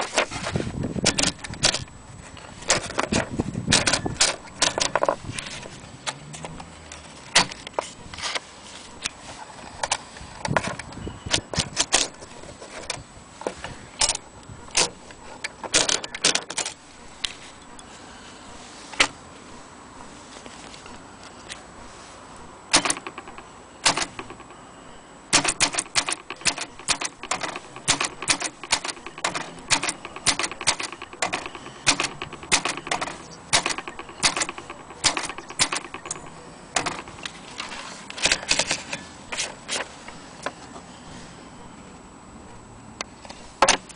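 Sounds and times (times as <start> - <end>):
manual typewriter typing: 1.0 - 1.9, 2.7 - 5.2, 15.7 - 16.8, 22.7 - 24.6, 25.3 - 39.9.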